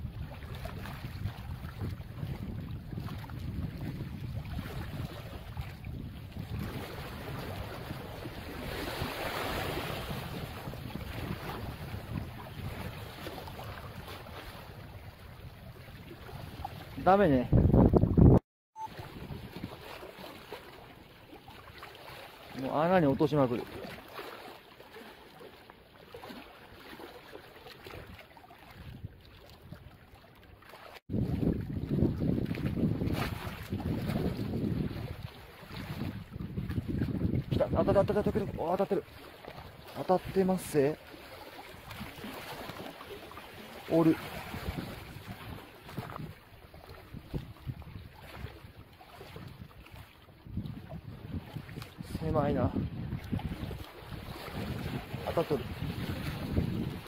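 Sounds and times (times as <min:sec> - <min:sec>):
wind rumbling on microphone: 0:00.0 - 0:18.4, 0:28.8 - 0:30.0, 0:31.1 - 0:40.9, 0:43.4 - 0:57.0
small waves sloshing against rocks: 0:00.1 - 0:17.3, 0:18.9 - 0:57.0
wave washing over rocks: 0:43.6 - 0:45.3, 0:54.7 - 0:55.9.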